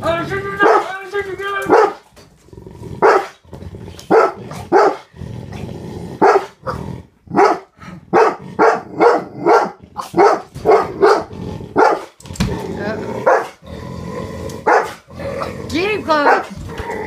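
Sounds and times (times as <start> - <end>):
dog barking: 0.6 - 0.9, 1.6 - 2.0, 3.0 - 3.4, 4.1 - 5.1, 6.2 - 6.6, 7.3 - 12.1, 13.2 - 13.6, 14.6 - 15.0, 16.2 - 16.6.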